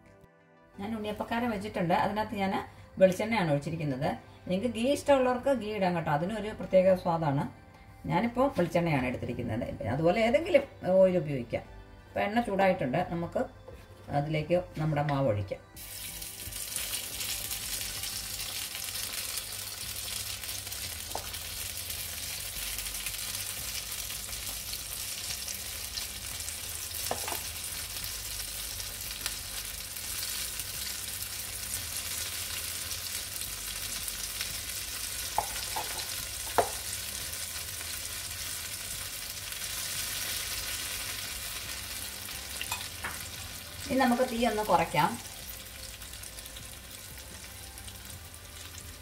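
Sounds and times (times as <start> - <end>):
batter sizzling in oil: 15.8 - 49.0.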